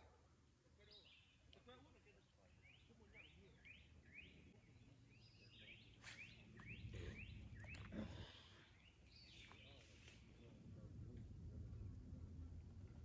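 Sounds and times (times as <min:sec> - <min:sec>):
songbird singing rising notes: 0:02.6 - 0:10.5
low outdoor rumble: 0:05.8 - 0:13.0.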